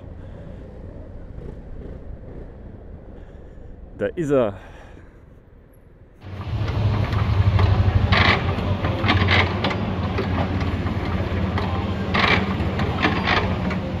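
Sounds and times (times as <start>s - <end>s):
engine idling: 6.2s - 14.0s.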